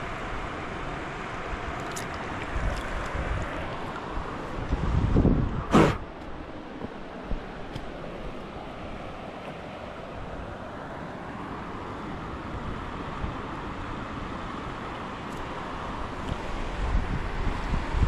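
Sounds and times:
creek water flowing: 0.0 - 18.0
wind buffeting microphone: 2.3 - 8.4, 16.4 - 18.0.

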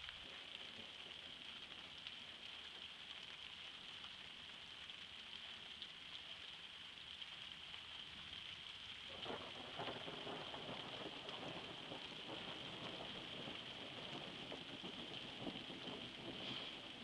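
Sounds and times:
rain hissing: 0.0 - 17.0
low rumble of thunder: 9.1 - 17.0.

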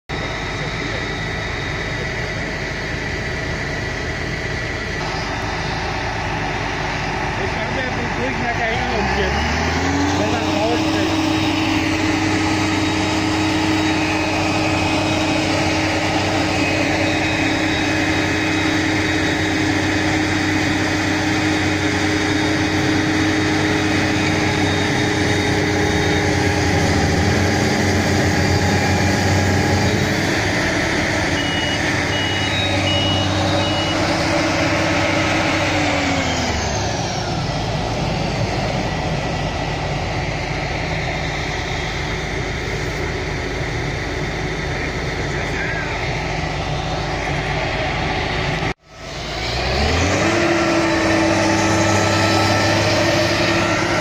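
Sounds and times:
tractor diesel engine under load: 0.0 - 54.0
short beeps: 31.3 - 34.2.

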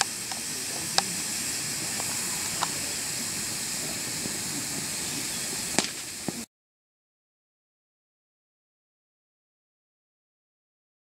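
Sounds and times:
spark fountains hissing: 0.0 - 6.5
sharp cracks: 5.6 - 6.4.

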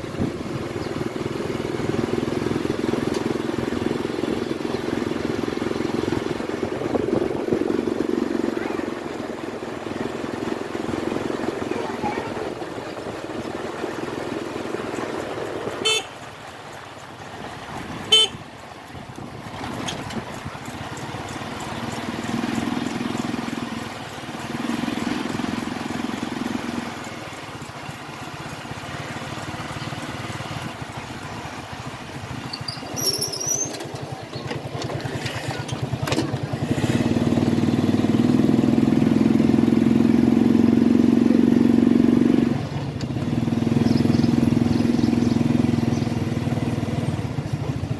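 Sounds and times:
motorcycle engine running: 0.0 - 47.9
motorcycle horn toots: 15.8 - 16.3, 18.0 - 18.4.

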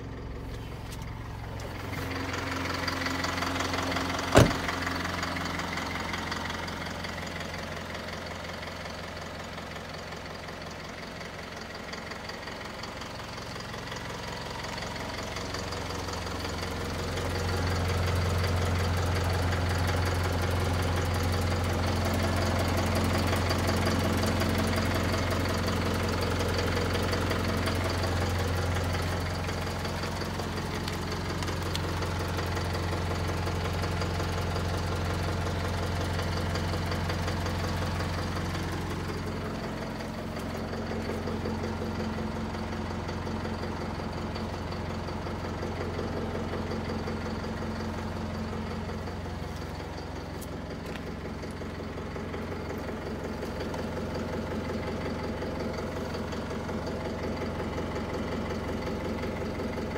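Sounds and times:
truck engine idling: 0.0 - 59.9.

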